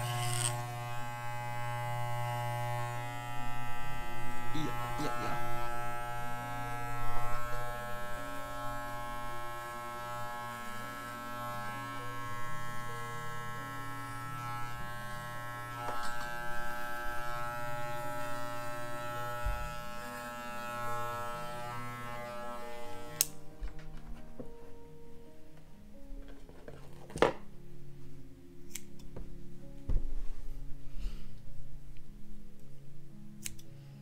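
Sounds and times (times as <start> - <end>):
electric hair clippers buzzing: 0.0 - 23.4.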